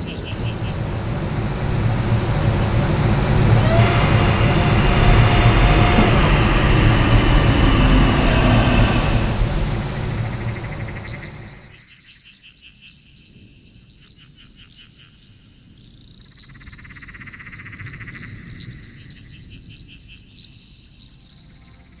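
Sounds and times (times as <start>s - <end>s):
loud rushing sound: 0.0s - 11.7s
insects chirping: 0.0s - 11.8s.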